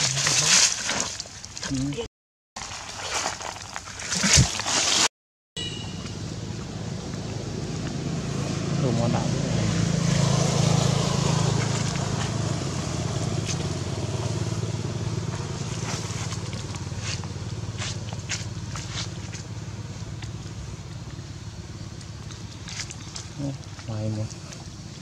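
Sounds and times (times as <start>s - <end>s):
motor engine humming: 5.6s - 25.0s.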